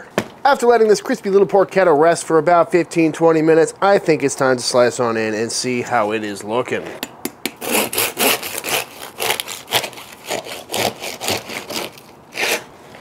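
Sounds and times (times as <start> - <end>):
knife crunching through crisp skin: 7.4 - 12.7.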